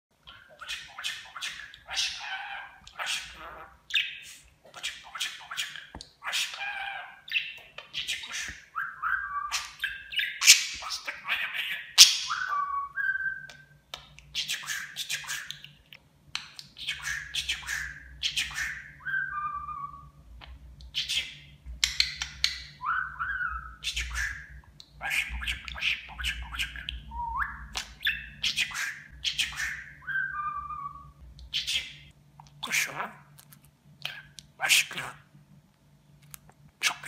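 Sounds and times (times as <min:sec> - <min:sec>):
budgerigar chattering: 0:00.2 - 0:12.6
budgerigar whistled notes: 0:12.0 - 0:13.6, 0:22.8 - 0:24.5, 0:29.4 - 0:31.2.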